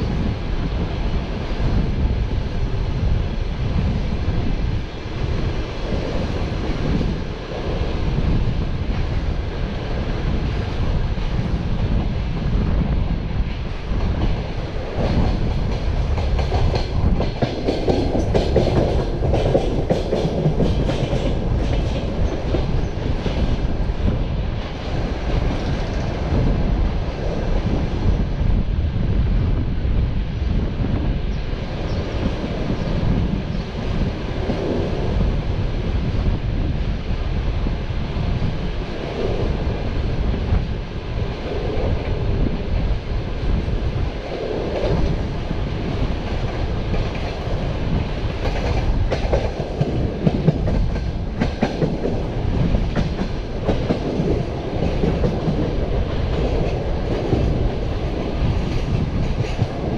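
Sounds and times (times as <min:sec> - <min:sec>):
train rumble: 0:00.0 - 0:59.9
train wheels clattering over rails: 0:13.5 - 0:26.8, 0:44.0 - 0:59.9.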